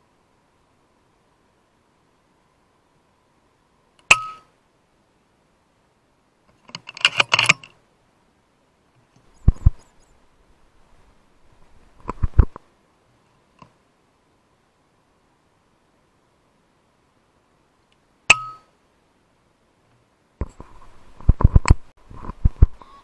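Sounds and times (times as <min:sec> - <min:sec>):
air rifle metallic clicks: 0:06.5 - 0:07.8.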